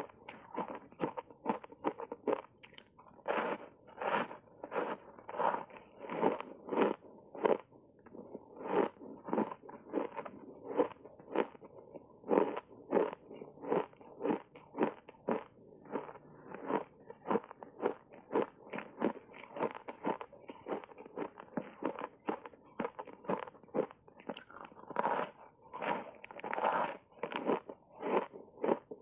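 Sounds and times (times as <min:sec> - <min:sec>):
crunchy ice being chewed: 0:00.0 - 0:29.0.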